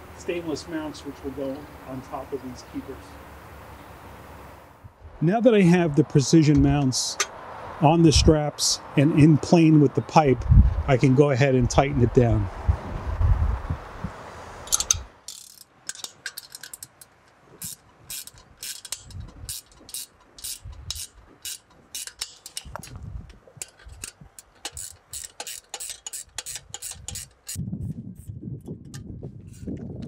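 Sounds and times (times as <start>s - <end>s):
ratchet wrench clicking: 14.7s - 23.0s, 23.6s - 27.6s.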